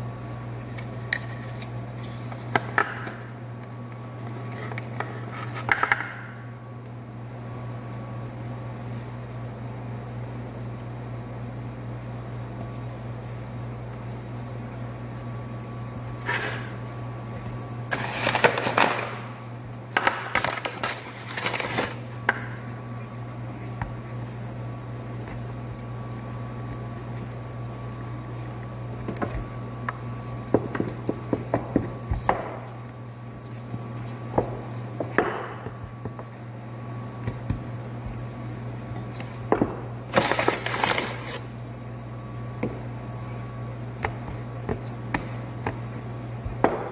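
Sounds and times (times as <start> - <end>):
low machine hum: 0.0 - 46.9
dough rustling: 11.9 - 46.9
rolling pin rolling dough: 21.4 - 46.9.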